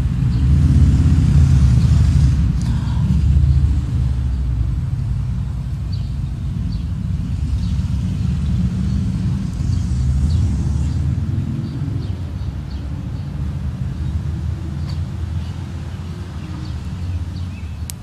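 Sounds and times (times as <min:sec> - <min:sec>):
breath buffeting microphone: 0:01.8 - 0:03.8.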